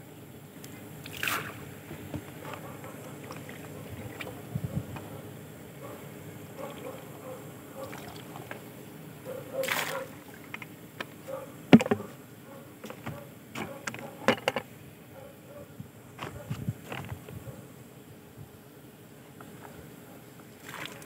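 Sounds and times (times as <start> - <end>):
liquid splashing from bucket: 1.0 - 1.7, 7.8 - 8.6, 9.6 - 10.6, 20.6 - 21.0
plastic bucket knocks: 11.7 - 12.1.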